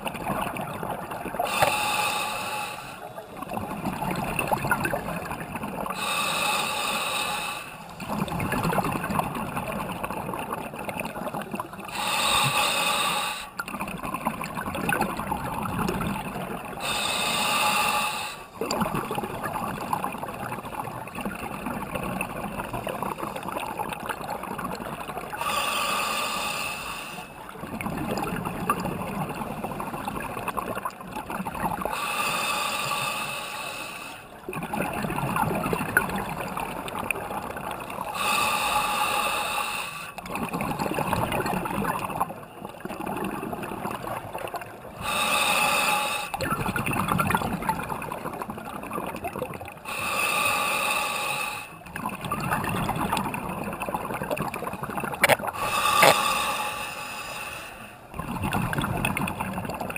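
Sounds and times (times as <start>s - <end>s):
exhaust bubbles gurgling: 0.0s - 2.5s, 3.1s - 12.8s, 13.5s - 25.8s, 27.4s - 32.0s, 34.4s - 39.0s, 40.2s - 45.5s, 46.2s - 50.4s, 51.8s - 56.6s, 58.0s - 59.9s
regulator inhale hiss: 1.5s - 3.2s, 6.0s - 8.0s, 11.9s - 13.6s, 16.8s - 18.6s, 25.4s - 27.4s, 31.9s - 34.3s, 38.2s - 40.2s, 45.0s - 46.4s, 49.9s - 51.8s, 55.6s - 58.1s.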